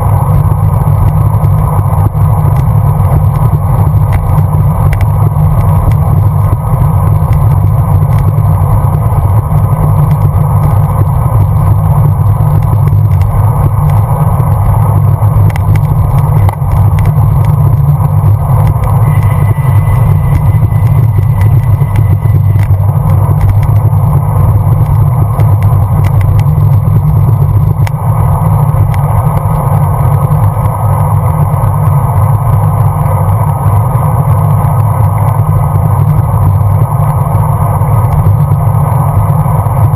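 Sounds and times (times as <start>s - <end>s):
faint high whine: 0.0s - 39.9s
road noise: 0.0s - 39.9s
wind rumble on microphone: 0.0s - 39.9s.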